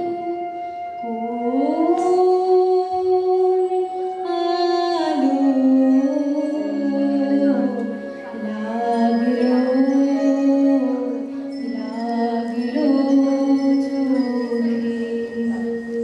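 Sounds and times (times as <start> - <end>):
gliding melody over drone: 0.0 - 16.0.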